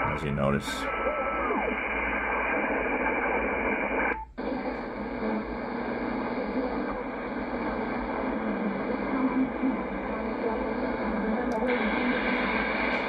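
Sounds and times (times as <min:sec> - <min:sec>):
shortwave radio static hiss: 0:00.0 - 0:13.0.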